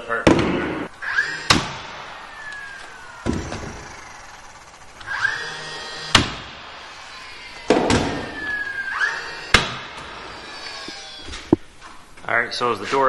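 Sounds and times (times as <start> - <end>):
stapler shots into wood: 1.5 - 1.9.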